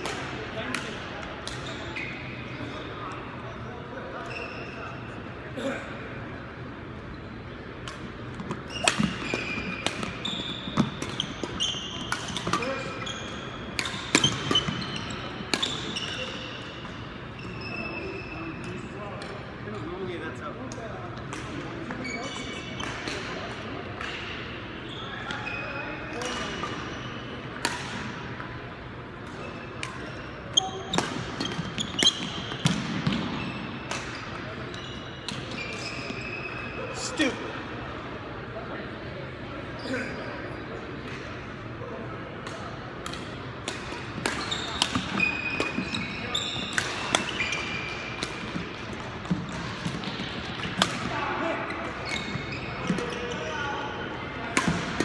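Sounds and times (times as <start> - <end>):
shoe squeaks on wooden court: 1.5 - 2.9, 4.0 - 5.2, 8.4 - 18.8, 21.8 - 23.2, 24.8 - 27.4, 29.4 - 37.4, 39.8 - 40.7, 43.8 - 48.6, 51.7 - 53.9
racket hitting shuttlecock: 7.8 - 10.2, 27.6 - 28.1, 42.4 - 45.9, 46.6 - 51.1.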